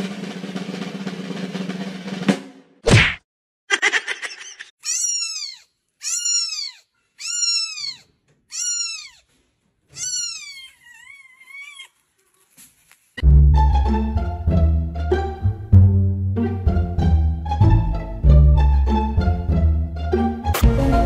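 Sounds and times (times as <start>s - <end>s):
kitten mewing: 4.4s - 9.3s, 9.9s - 12.0s
loud music: 13.2s - 21.0s.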